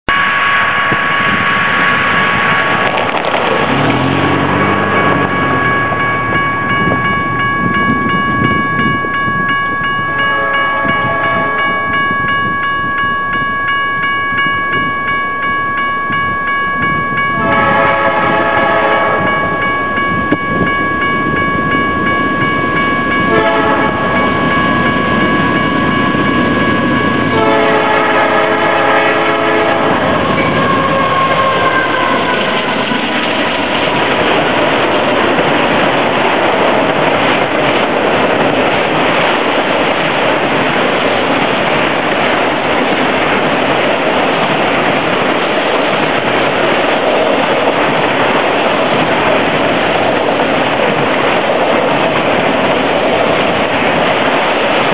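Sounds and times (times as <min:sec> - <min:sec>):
crossing signal bell ringing: 0:00.1 - 0:01.4, 0:02.7 - 0:39.3
locomotive air horn: 0:10.2 - 0:11.6, 0:17.4 - 0:19.3, 0:23.3 - 0:24.2, 0:27.3 - 0:33.2.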